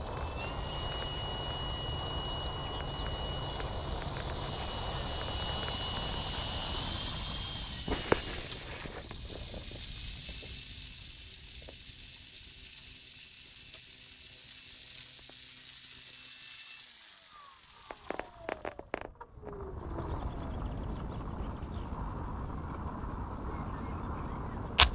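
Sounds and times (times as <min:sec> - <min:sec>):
high electric motor whine: 0:00.0 - 0:24.9.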